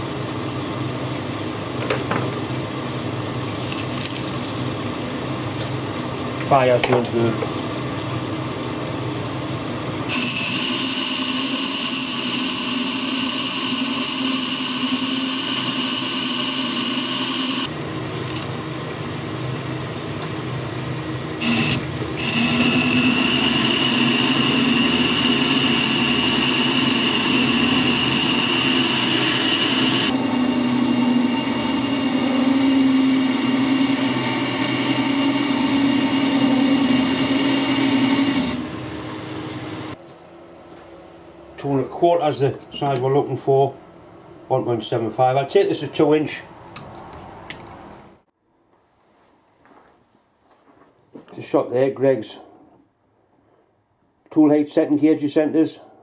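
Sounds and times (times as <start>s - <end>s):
metal lathe running with whine: 7.6s - 40.0s.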